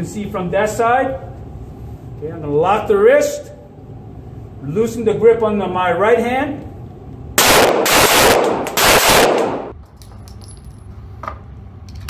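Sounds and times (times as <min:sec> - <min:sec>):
rapid pistol shots echoing indoors: 0:07.4 - 0:09.8
faint clinks: 0:09.8 - 0:11.0.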